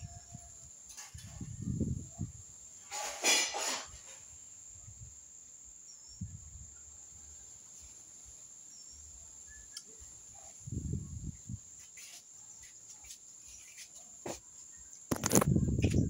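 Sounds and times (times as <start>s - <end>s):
insect drone: 0.0s - 16.0s
bird chirps: 8.7s - 10.2s.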